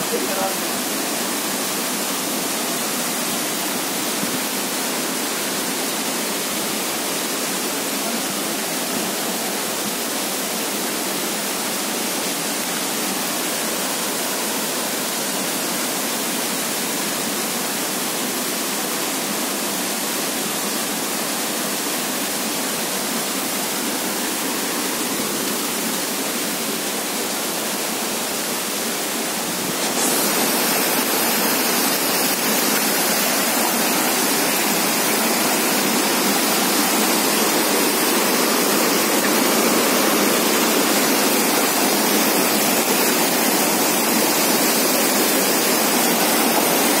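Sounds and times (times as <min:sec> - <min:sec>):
waterfall rushing: 0:00.0 - 0:47.0
water tumbling over rocks: 0:29.4 - 0:44.0.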